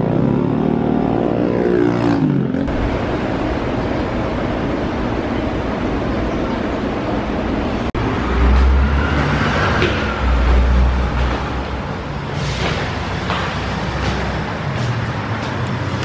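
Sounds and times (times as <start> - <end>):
street traffic noise: 0.0 - 16.0
footsteps on stairs: 9.6 - 11.9, 12.6 - 16.0.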